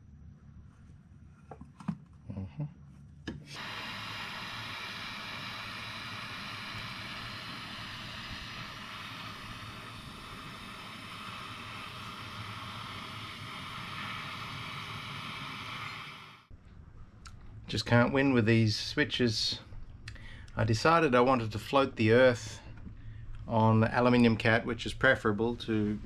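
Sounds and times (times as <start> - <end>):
soldering iron flame hissing: 3.4 - 16.5, 23.5 - 26.0.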